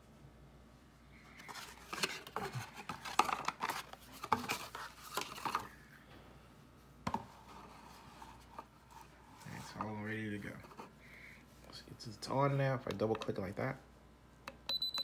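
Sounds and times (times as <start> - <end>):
cardboard and paper packaging rustling: 1.3 - 5.8.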